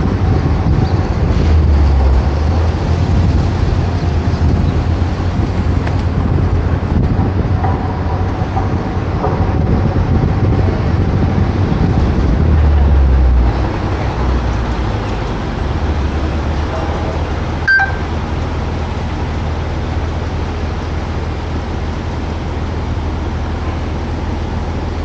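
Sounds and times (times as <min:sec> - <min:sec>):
road and engine rumble: 0:00.0 - 0:25.0
short high beep: 0:17.6 - 0:18.1.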